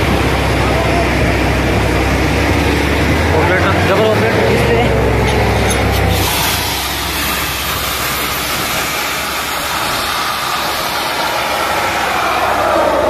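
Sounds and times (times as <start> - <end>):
drilling rig engine running: 0.0 - 13.0
rush of compressed air: 5.8 - 13.0.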